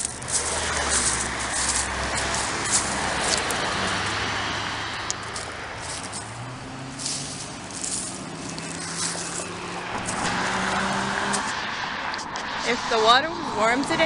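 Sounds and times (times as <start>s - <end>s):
cars driving past: 0.0s - 14.0s
short rustles: 7.0s - 10.2s.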